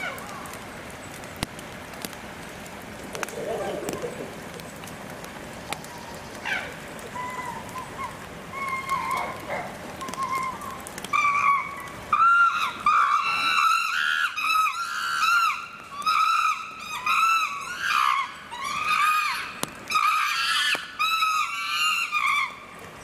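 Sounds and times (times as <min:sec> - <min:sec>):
chimpanzees screaming: 0:05.9 - 0:22.7.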